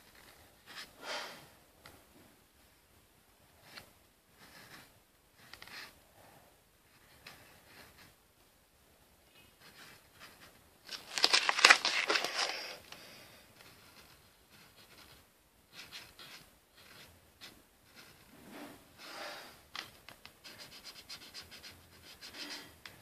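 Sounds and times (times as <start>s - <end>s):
markers scratching on paper: 3.6s - 6.0s, 6.9s - 8.2s, 13.6s - 18.3s, 20.4s - 22.7s
paper rustling: 9.7s - 12.9s.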